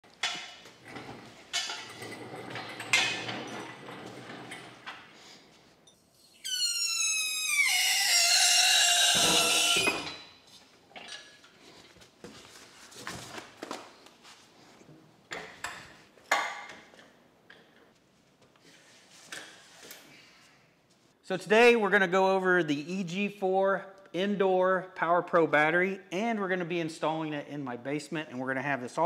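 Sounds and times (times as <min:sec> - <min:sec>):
crane metal squeal: 0:06.2 - 0:10.2.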